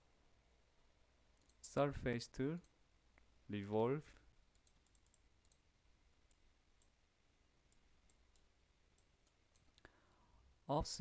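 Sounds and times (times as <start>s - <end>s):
computer mouse clicks: 4.5s - 7.0s, 7.7s - 9.9s.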